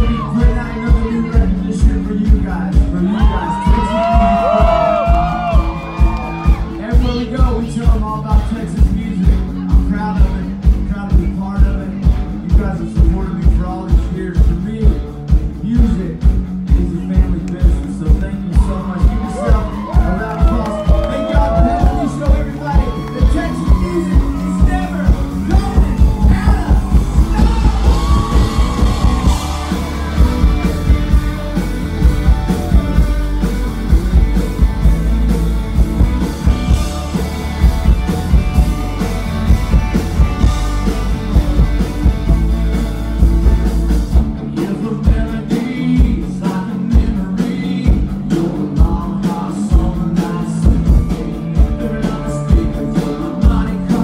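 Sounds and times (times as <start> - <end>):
country-rock band playing: 0.0 - 54.0
person singing: 44.4 - 54.0.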